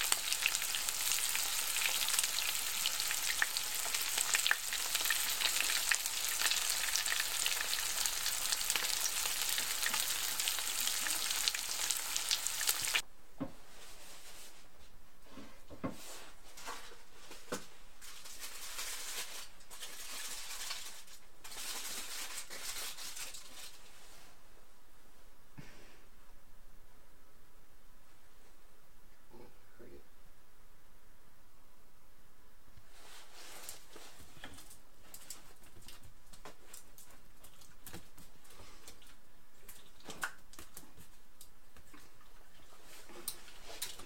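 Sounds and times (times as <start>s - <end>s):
steak sizzling in a frying pan: 0.0s - 13.0s.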